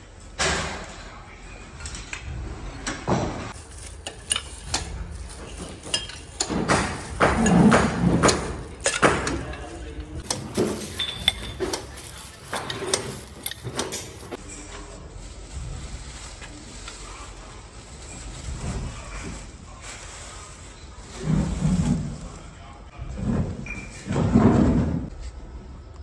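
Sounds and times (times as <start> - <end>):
metal parts clinking and knocking: 10.2 - 14.4.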